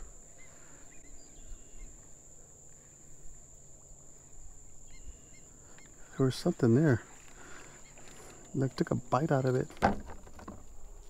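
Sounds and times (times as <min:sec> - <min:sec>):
faint bird chirps: 0:00.0 - 0:08.6.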